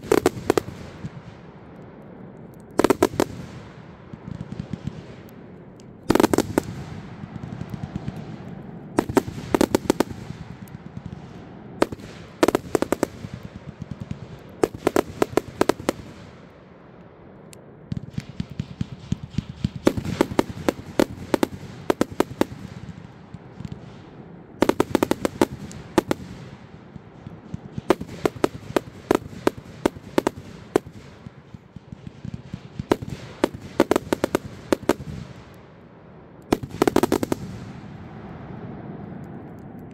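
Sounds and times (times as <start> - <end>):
firework bangs: 0.0 - 1.7, 2.7 - 16.5, 17.9 - 39.2.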